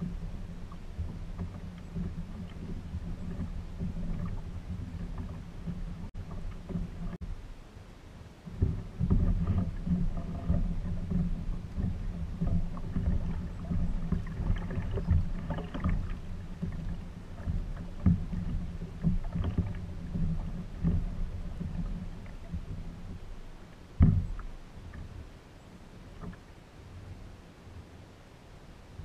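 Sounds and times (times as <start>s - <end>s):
low uneven rumble: 0.0s - 29.0s.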